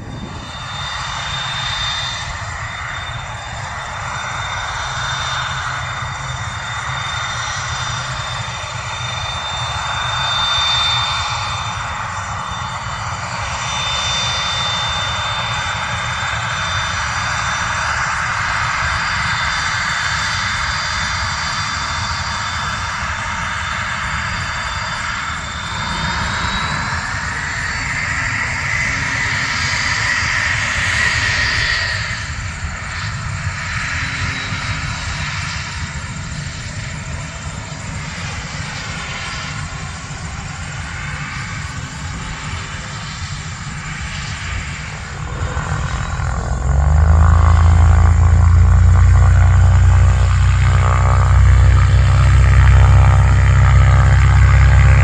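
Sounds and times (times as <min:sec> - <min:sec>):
jet engines whining: 0:00.0 - 0:55.0
loud low buzzing drone: 0:00.0 - 0:55.0.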